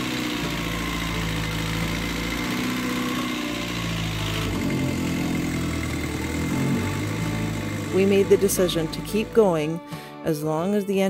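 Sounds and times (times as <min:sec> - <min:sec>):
diesel engine running unevenly: 0:00.0 - 0:10.2.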